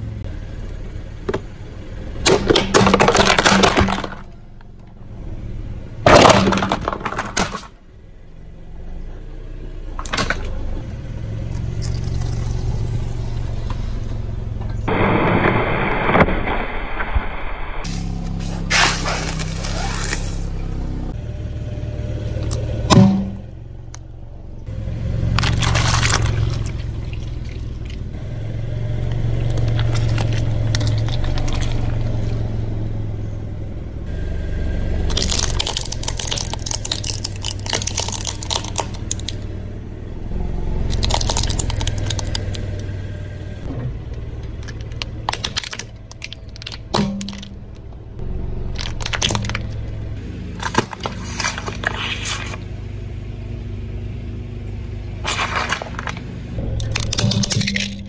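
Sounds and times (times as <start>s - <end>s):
car low rumble: 0.0s - 58.0s
plastic toys cracking and crunching: 2.2s - 4.3s, 6.1s - 7.8s, 25.3s - 28.0s, 29.4s - 32.4s, 35.0s - 39.5s, 40.8s - 42.9s, 44.4s - 48.0s, 48.7s - 49.9s, 50.6s - 52.6s, 55.2s - 58.0s.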